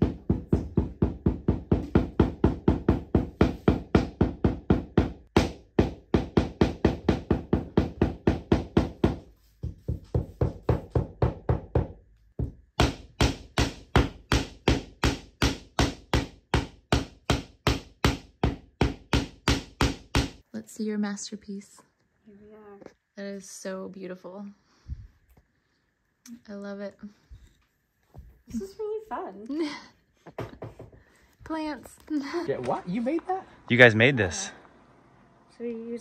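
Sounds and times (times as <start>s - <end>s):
hammer pounding cloth on wooden floor: 0.0s - 20.4s.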